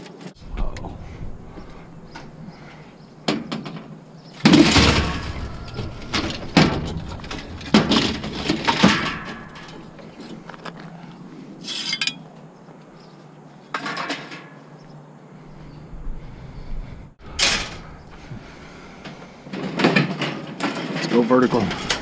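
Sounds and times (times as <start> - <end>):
metal rattles: 0.4 - 12.2, 17.2 - 22.0
metal junk clanking: 0.5 - 10.8, 17.3 - 22.0.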